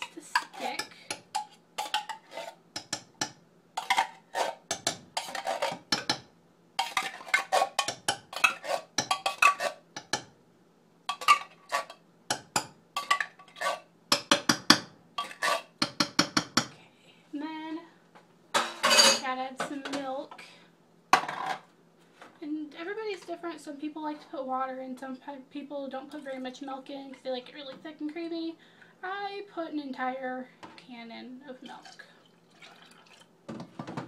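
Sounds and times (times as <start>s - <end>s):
metal utensil scraping tin can: 0.0s - 2.6s, 3.8s - 4.6s, 5.2s - 5.9s, 6.8s - 9.8s, 11.1s - 12.0s, 13.0s - 13.9s, 15.2s - 15.8s.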